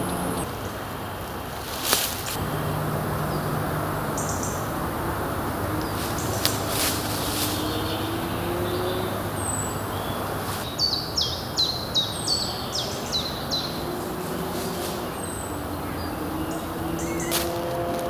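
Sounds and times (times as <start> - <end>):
songbird singing: 0.0 - 1.2, 2.3 - 18.0
low background rumble: 2.4 - 10.6
thin high bird calls: 5.8 - 17.7.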